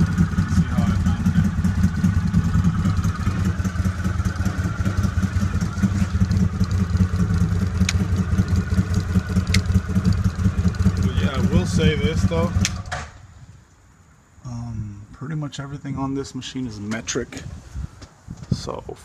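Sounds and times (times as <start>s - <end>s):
engine idling: 0.0s - 13.3s
rocker switch clicks: 7.8s - 8.0s, 9.5s - 9.7s.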